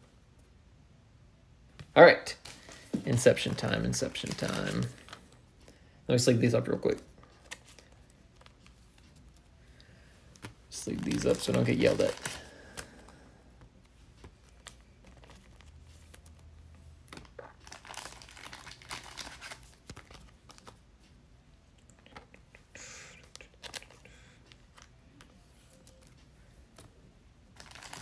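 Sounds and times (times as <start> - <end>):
plastic crinkle: 2.3 - 5.3, 10.7 - 13.1, 17.1 - 20.8, 27.6 - 28.0
plastic rustling: 2.3 - 5.4, 10.4 - 13.2, 17.1 - 20.8, 27.6 - 28.0
cards sliding into plastic sleeves: 10.2 - 16.4.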